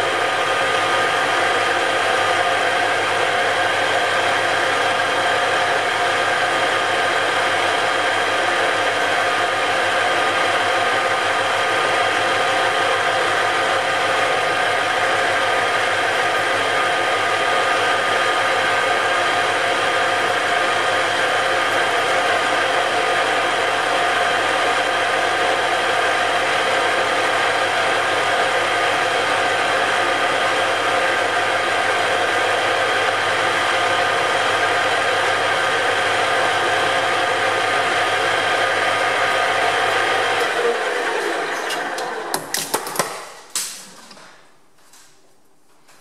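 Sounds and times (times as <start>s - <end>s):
metal lathe whining: 0.0s - 25.8s, 33.3s - 43.0s.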